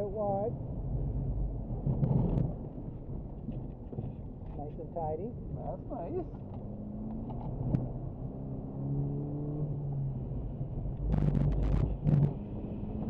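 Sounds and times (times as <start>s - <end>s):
car engine running: 9.7s - 13.0s.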